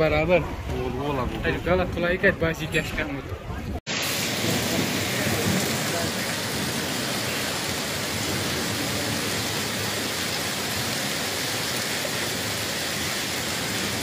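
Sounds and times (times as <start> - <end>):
heavy hail and rain: 3.9 - 14.0.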